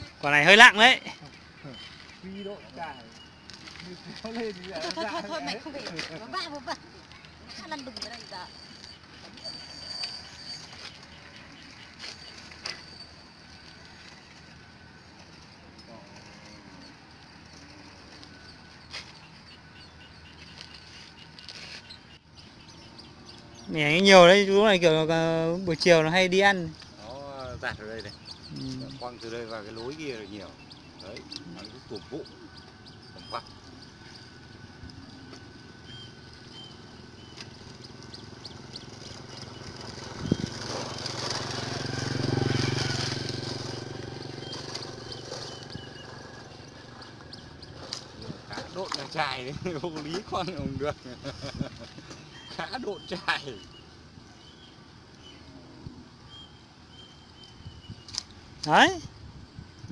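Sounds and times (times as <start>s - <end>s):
faint bird chirps: 0.0s - 4.1s
small engine passing by: 1.6s - 59.8s.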